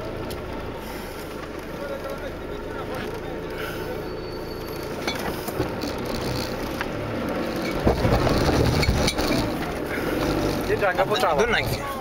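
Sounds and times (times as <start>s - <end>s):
off-road vehicle engine running: 0.0s - 12.0s
knocks and rattles: 5.0s - 10.9s.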